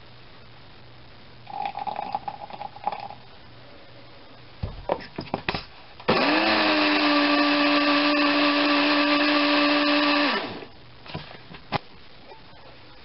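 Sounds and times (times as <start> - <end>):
electric blender motor: 6.1 - 10.7.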